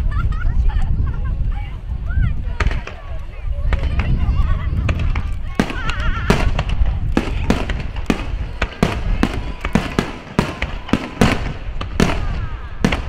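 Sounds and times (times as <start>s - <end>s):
firework shells bursting: 4.9s - 13.0s.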